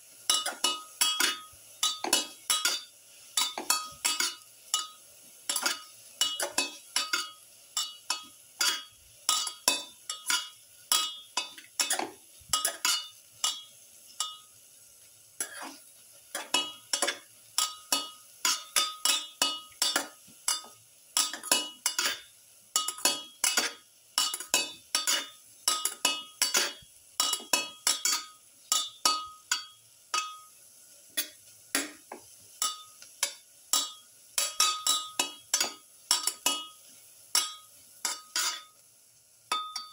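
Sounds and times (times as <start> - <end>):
onions sauteing in a pan: 0.0 - 39.9
utensil scraping a pan: 15.4 - 28.9, 37.3 - 38.7.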